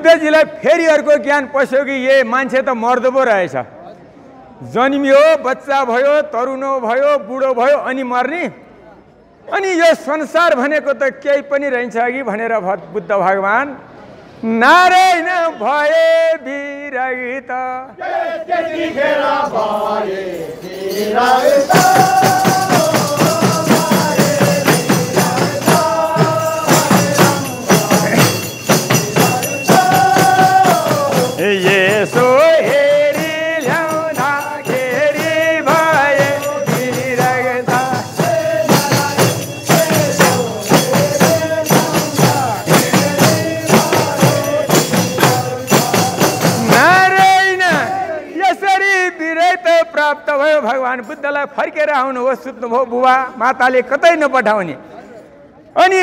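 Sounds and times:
men singing together: 17.8 - 48.4
frame drums beaten fast: 21.2 - 48.3.

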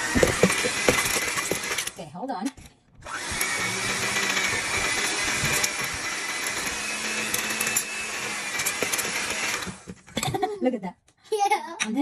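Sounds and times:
electric stand mixer whisking: 0.0 - 1.9, 3.0 - 10.1.

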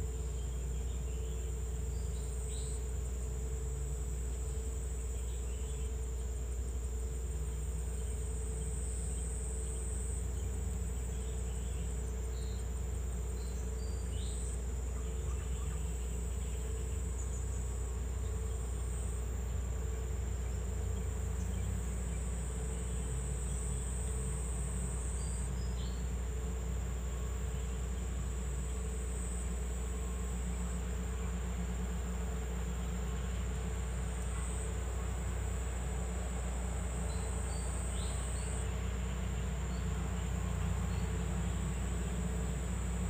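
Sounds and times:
insects chirring: 0.0 - 43.0.

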